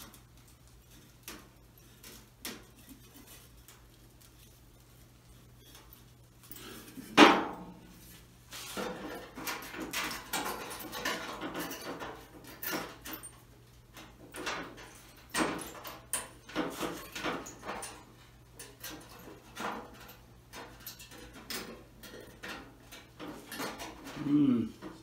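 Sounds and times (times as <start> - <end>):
sheet metal clank: 7.1 - 7.9
loud knocks on metal: 7.2 - 7.8.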